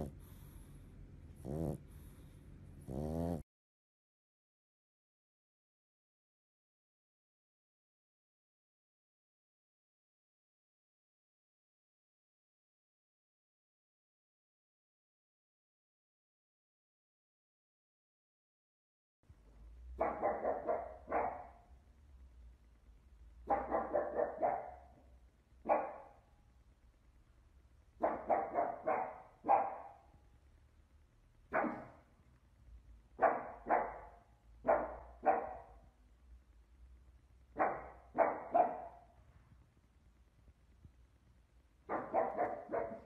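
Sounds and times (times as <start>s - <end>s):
dog barking: 20.0s - 21.6s, 23.4s - 25.0s, 25.6s - 26.2s, 28.0s - 30.1s, 31.5s - 32.0s, 33.2s - 35.8s, 37.6s - 39.1s, 41.9s - 43.0s.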